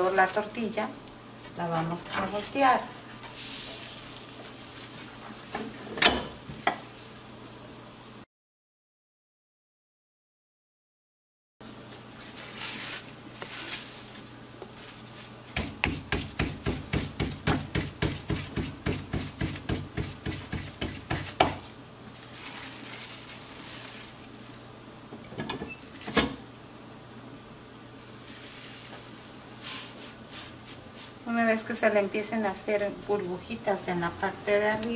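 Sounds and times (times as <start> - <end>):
hands patting dough: 12.7 - 21.7.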